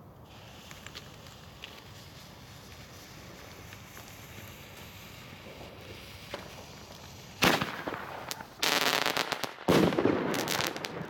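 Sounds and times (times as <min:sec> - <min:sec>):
firework crackling: 0:00.0 - 0:11.0
firework bang: 0:05.4 - 0:11.0.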